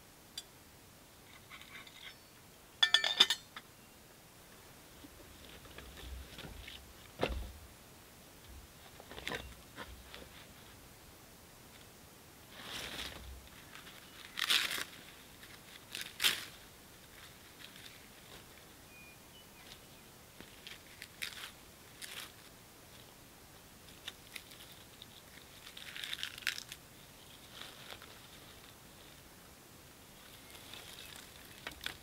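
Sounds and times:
kindling tearing and crunching: 12.6 - 18.5, 20.5 - 22.5, 23.9 - 29.2, 30.4 - 32.0.

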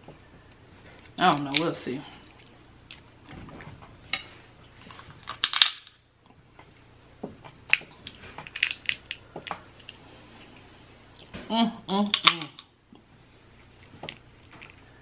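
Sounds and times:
crab shells cracking: 5.2 - 6.0, 7.7 - 10.0.

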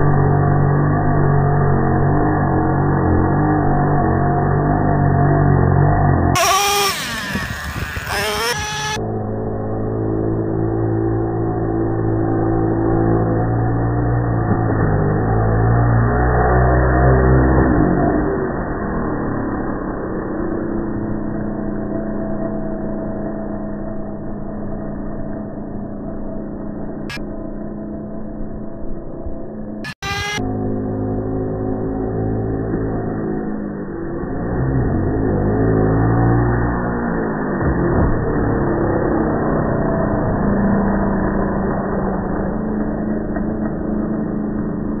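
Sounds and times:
two-stroke engine running: 0.0 - 17.7
small two-stroke engine running: 0.0 - 45.0.

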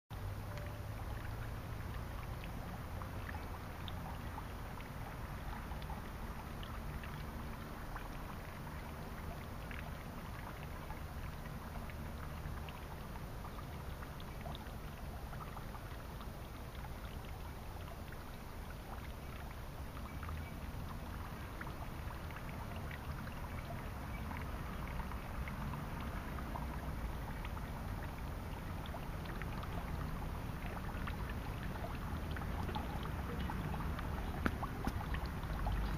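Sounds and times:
water dripping into jar: 0.4 - 7.4, 8.0 - 35.9
steady low rumble: 25.5 - 35.9.

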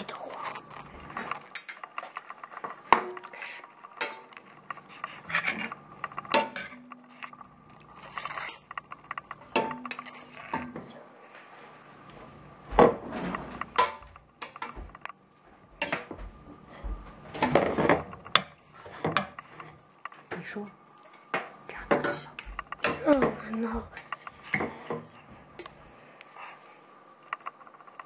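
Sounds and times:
fork scraping and clinking in pot: 2.8 - 10.8, 21.1 - 25.8.

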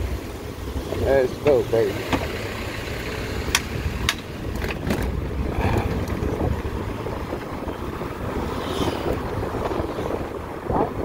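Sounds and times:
road noise: 0.0 - 11.0
wind rumbling on microphone: 3.0 - 11.0.

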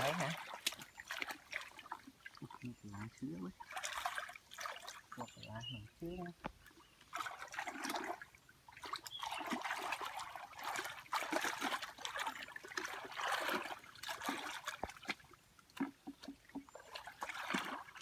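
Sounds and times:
muddy water sloshing and splashing: 0.0 - 18.0
small wet clicks: 0.4 - 2.4.

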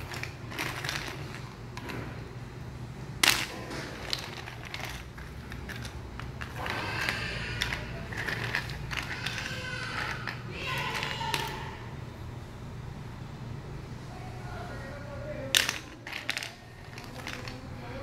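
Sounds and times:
dried sea cucumbers clattering: 0.0 - 2.2, 3.2 - 11.7, 15.5 - 18.0.

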